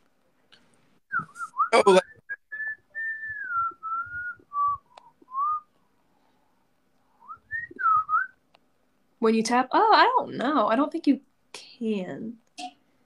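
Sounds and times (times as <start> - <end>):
person whistling a tune: 1.1 - 5.7, 7.2 - 8.3.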